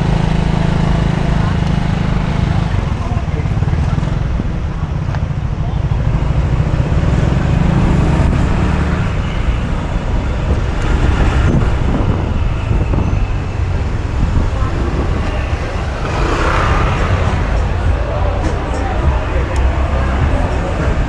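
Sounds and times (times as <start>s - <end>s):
engine noise: 0.0s - 21.0s
road traffic: 0.0s - 21.0s
loud low rumble: 7.2s - 21.0s.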